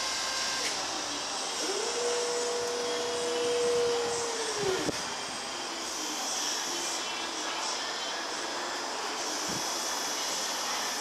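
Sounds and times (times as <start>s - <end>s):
hydraulic pump motor whining: 0.0s - 6.2s.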